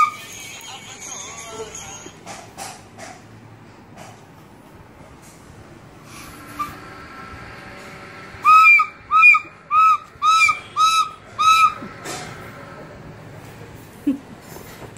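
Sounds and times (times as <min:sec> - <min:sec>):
toy flute hooting notes: 0:00.0 - 0:01.8, 0:08.4 - 0:11.9.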